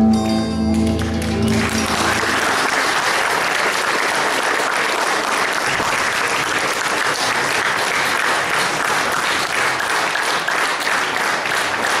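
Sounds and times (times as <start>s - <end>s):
audience applauding: 0.6s - 12.0s.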